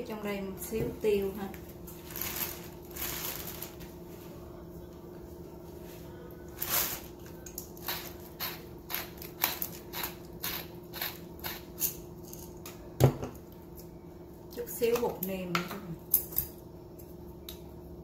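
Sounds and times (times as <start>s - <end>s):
steady low hum: 0.0s - 18.0s
pepper mill grinding: 7.5s - 12.5s.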